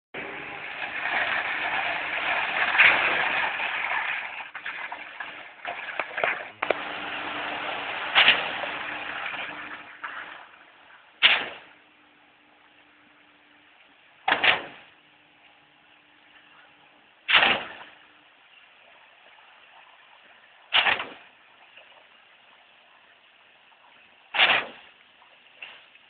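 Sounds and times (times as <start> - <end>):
concrete pump rushing: 0.2 - 11.7, 20.7 - 21.3, 24.4 - 24.9
faint steady hum: 0.2 - 26.0.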